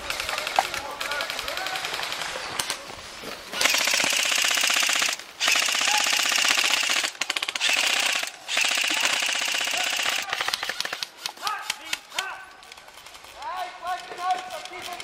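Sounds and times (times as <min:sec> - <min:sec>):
airsoft gun firing full-auto: 0:03.6 - 0:11.2.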